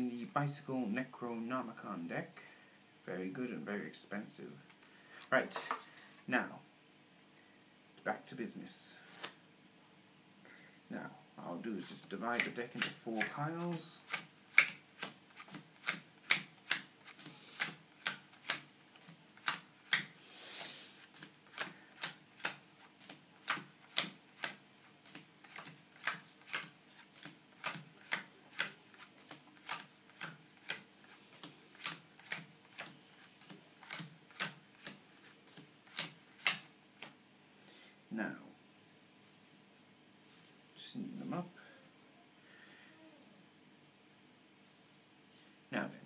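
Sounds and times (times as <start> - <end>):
soft rustle: 39.2 - 40.8.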